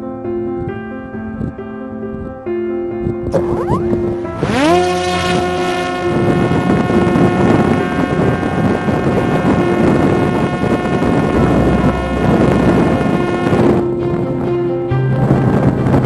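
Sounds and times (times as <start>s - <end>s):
wind over microphone: 3.3s - 16.0s.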